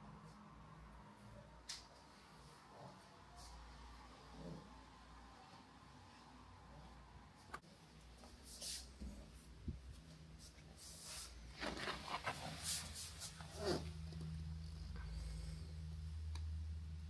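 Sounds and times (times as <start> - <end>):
fabric curtain rustling: 10.4 - 13.8.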